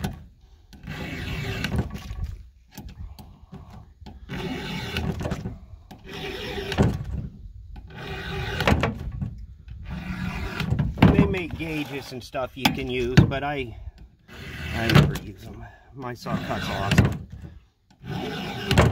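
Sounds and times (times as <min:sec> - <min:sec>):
file rasping on chainsaw chain: 0:00.7 - 0:01.7, 0:04.2 - 0:05.2, 0:05.9 - 0:06.8, 0:07.8 - 0:08.7, 0:09.8 - 0:10.7, 0:11.6 - 0:13.0, 0:14.2 - 0:15.5, 0:16.1 - 0:17.0, 0:17.9 - 0:18.9.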